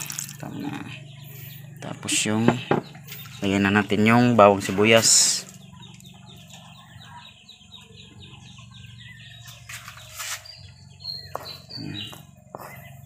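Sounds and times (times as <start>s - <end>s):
steady low hum: 0.0s - 13.0s
chickens clucking: 0.3s - 13.0s
brief scraping noises: 9.7s - 10.5s.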